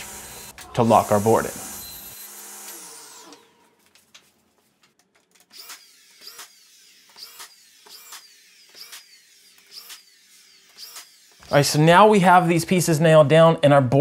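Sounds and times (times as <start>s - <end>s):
power tool whine: 0.0s - 3.7s, 5.5s - 11.6s.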